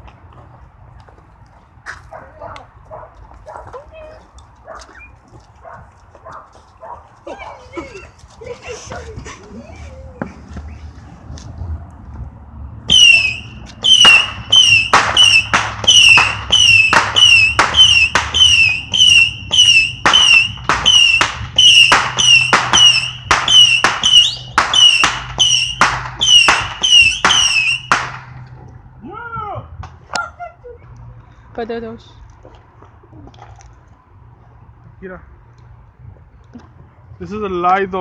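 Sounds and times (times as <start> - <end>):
missile shots popping and whistling: 12.9 - 28.2.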